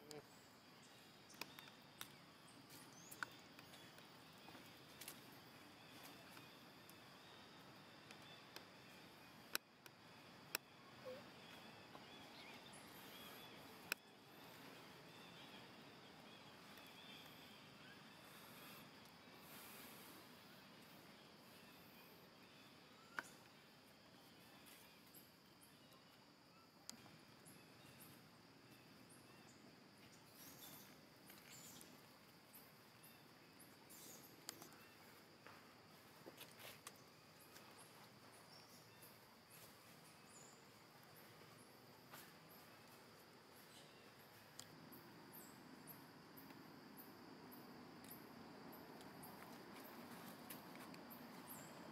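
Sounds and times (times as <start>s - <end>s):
faint high chirping: 0.0s - 48.3s
small sharp clicks: 1.3s - 2.2s, 9.5s - 10.7s.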